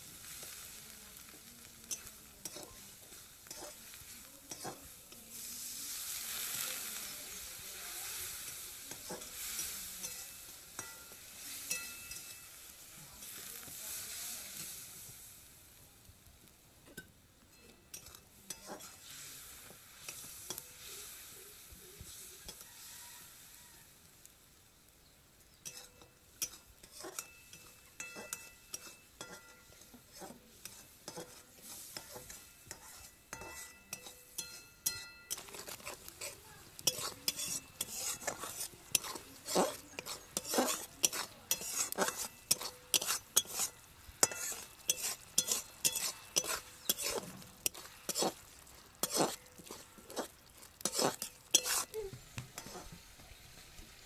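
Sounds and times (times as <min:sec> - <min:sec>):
spatula scraping metal pan: 0:01.8 - 0:07.6, 0:08.2 - 0:12.6, 0:17.6 - 0:20.8, 0:25.6 - 0:52.0, 0:52.6 - 0:53.0.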